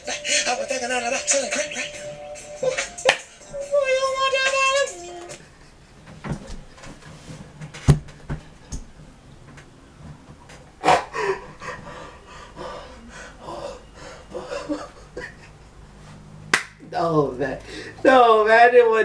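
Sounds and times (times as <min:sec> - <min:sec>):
man stifling laughter: 0:14.3 - 0:15.8.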